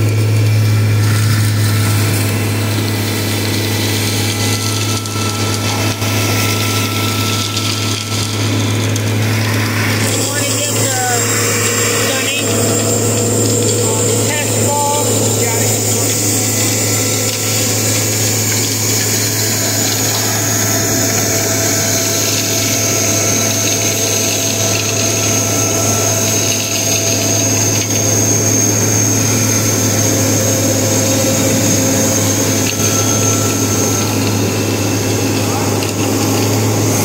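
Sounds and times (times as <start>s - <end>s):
high whine: 0.0s - 37.0s
low hum: 0.0s - 37.0s.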